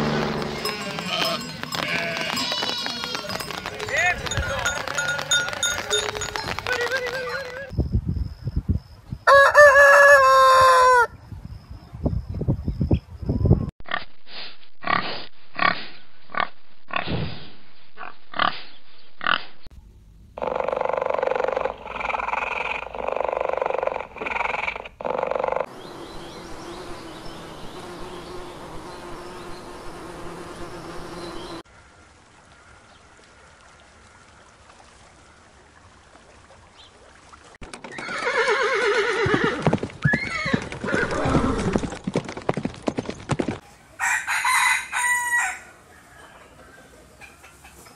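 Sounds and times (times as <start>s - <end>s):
hoof beats: 0.0s - 7.7s, 37.7s - 43.7s
horses neighing: 0.3s - 7.7s, 37.8s - 42.0s
honeybee buzzing: 25.7s - 31.6s.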